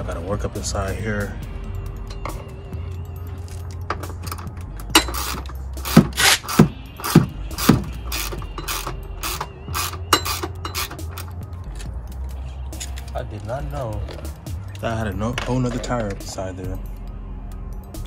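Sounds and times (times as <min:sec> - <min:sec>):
ratchet wrench clicking: 0:04.2 - 0:11.4.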